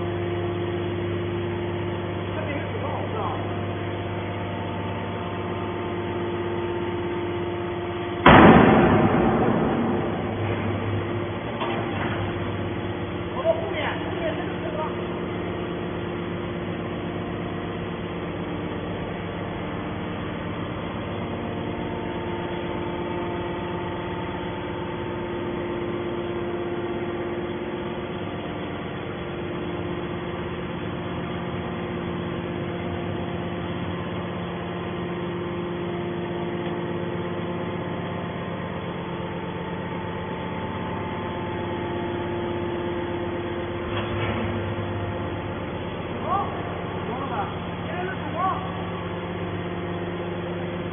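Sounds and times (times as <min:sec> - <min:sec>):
hydraulic power unit humming: 0:00.0 - 0:50.9
metal clank: 0:08.2 - 0:12.4.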